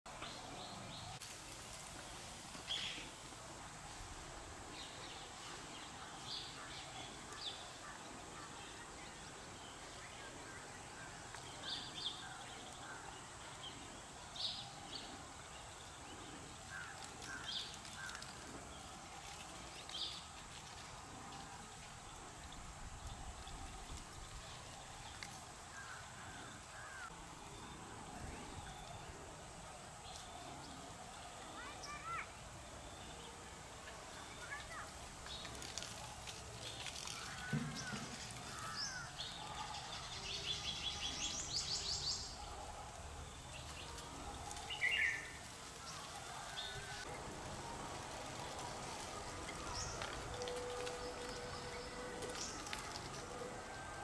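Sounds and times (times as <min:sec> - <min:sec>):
background hiss: 0:00.1 - 0:54.0.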